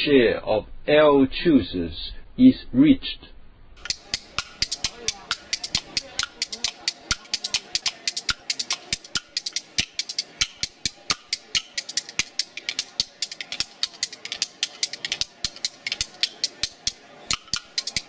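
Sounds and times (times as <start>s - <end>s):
quick dry percussion hits: 3.8s - 18.0s.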